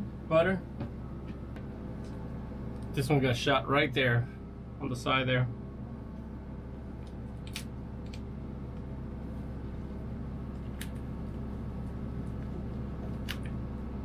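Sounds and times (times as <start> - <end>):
steady machine hum: 0.0 - 14.0
lobster shell cracking: 7.4 - 8.2, 13.2 - 13.6.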